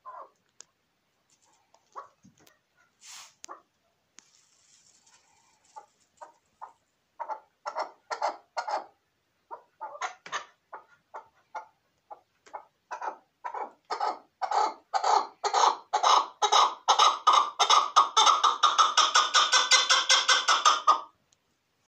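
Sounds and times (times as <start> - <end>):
partridge clucking calls: 5.0 - 21.1.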